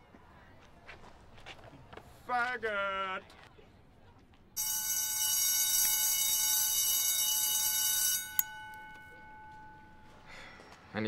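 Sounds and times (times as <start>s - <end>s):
electric school bell ringing: 4.6s - 10.6s.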